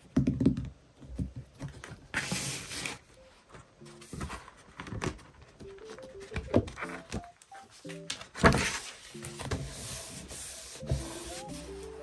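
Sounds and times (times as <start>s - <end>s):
paper rustling: 1.8s - 12.0s
pages flipping: 4.0s - 11.8s.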